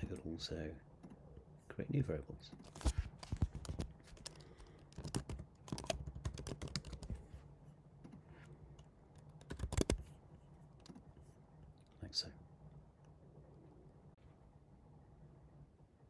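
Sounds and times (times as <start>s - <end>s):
keyboard typing: 3.3s - 7.2s, 9.2s - 10.1s.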